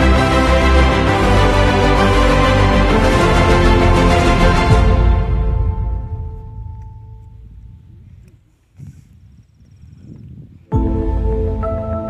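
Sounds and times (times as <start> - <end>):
background music: 0.0 - 8.0, 10.7 - 12.0.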